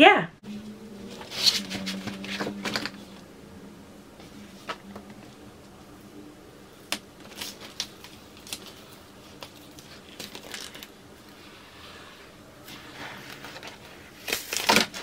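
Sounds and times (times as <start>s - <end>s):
plastic film crinkling: 7.2s - 11.0s.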